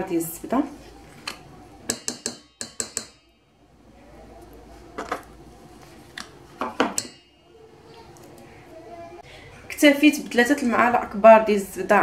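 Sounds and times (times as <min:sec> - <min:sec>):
spoon clicking against metal bowl: 0:01.9 - 0:03.3.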